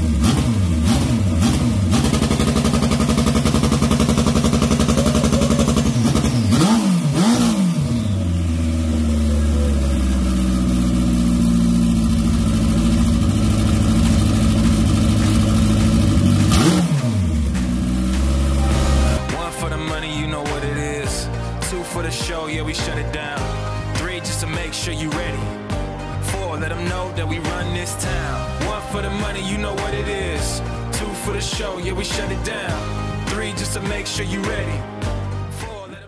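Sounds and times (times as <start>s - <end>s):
motorcycle engine idling and revving: 0.0s - 21.6s.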